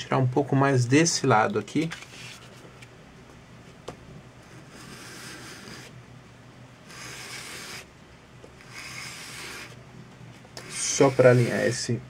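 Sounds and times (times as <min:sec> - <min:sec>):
sanding on sandpaper: 0:08.7 - 0:09.8, 0:10.6 - 0:11.8.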